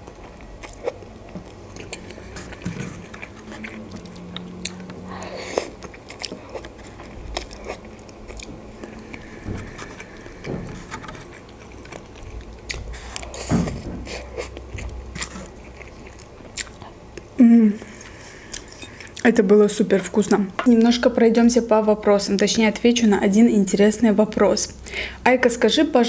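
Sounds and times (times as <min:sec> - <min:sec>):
slurping and chewing noodles: 0:00.2 - 0:10.5.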